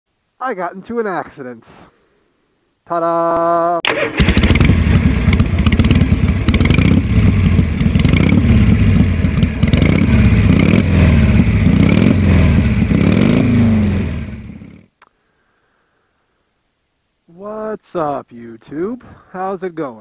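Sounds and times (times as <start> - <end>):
motorcycle engine revving: 3.9 - 14.9.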